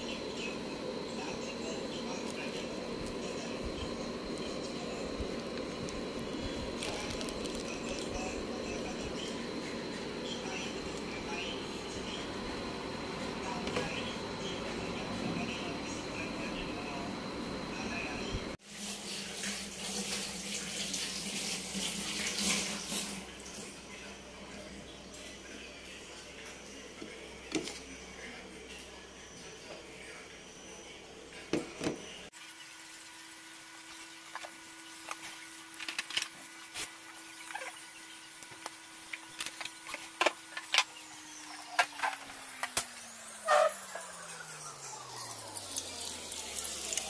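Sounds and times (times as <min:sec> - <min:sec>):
steady hum: 0:00.0 - 0:18.6
water running from a tap: 0:18.6 - 0:23.7, 0:45.2 - 0:47.0.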